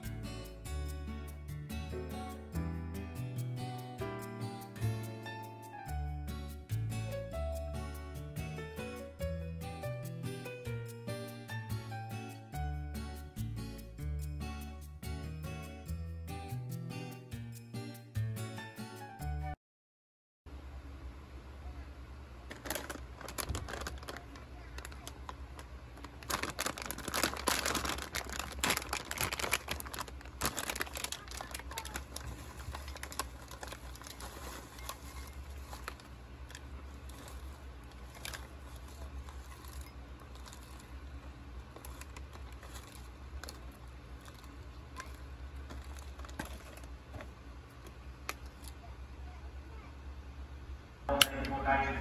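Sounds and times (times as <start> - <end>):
chip bag crinkling: 22.4 - 47.3
chips poured into bowl: 36.9 - 41.0.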